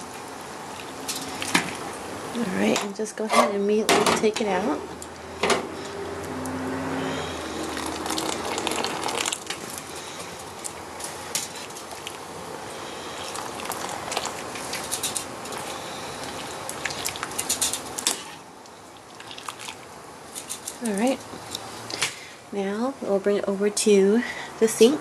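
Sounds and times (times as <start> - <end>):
water bubbling at a rolling boil: 0.0 - 2.7, 7.3 - 21.8.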